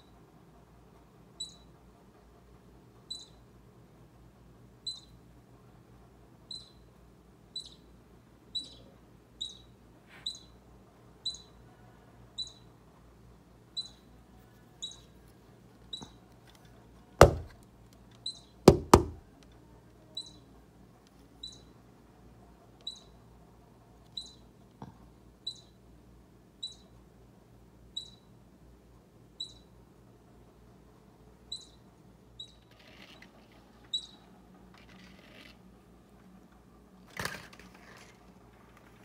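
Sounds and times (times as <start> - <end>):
baby squirrel squeaking: 1.4 - 1.7, 3.1 - 3.4, 4.8 - 5.2, 6.5 - 6.9, 7.5 - 7.9, 8.5 - 10.6, 11.2 - 11.6, 12.4 - 12.7, 13.7 - 14.1, 14.8 - 15.2, 18.2 - 19.2, 20.2 - 20.5, 21.4 - 21.8, 22.8 - 23.2, 24.2 - 24.5, 25.4 - 25.8, 26.6 - 26.9, 27.9 - 28.3, 29.4 - 29.7, 31.5 - 31.8, 32.4 - 35.5
loud knocks: 17.2 - 17.6, 18.7 - 19.2.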